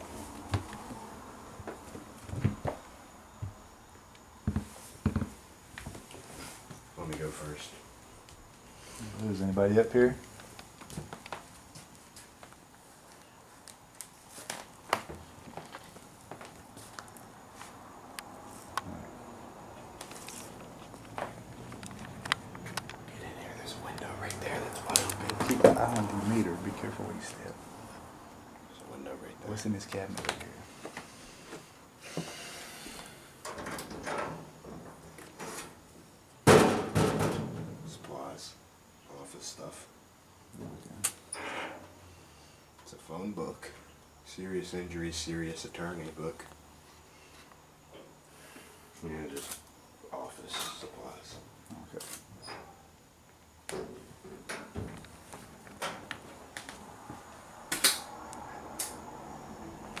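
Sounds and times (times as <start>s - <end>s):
faint steady hum: 0.0s - 60.0s
loud metal cabinet bang: 36.5s - 37.7s.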